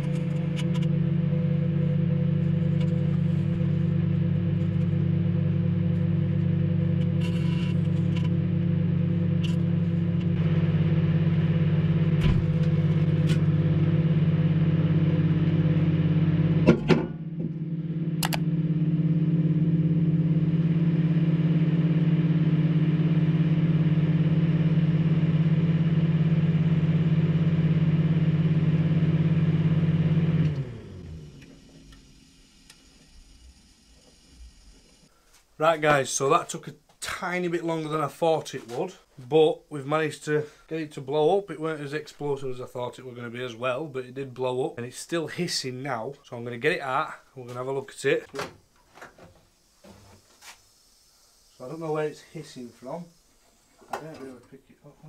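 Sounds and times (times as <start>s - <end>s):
microwave oven humming: 0.0s - 35.1s
sharp clicks: 18.2s - 18.4s.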